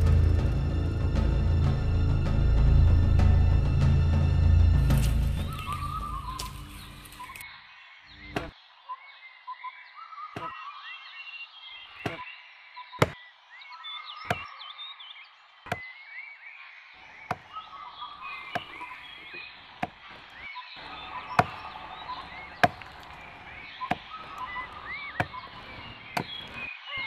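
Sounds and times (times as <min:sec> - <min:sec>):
blade chopping tree trunk: 0:08.3 - 0:08.5, 0:12.0 - 0:12.2, 0:14.3 - 0:14.5, 0:15.7 - 0:15.9, 0:18.5 - 0:18.9, 0:19.8 - 0:20.0, 0:21.3 - 0:21.8, 0:22.4 - 0:26.7
steady chirping: 0:17.2 - 0:27.0.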